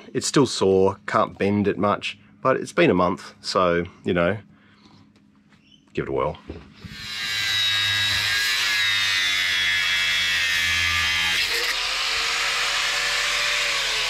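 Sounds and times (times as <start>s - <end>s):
angle grinder cutting steel: 6.9s - 14.0s.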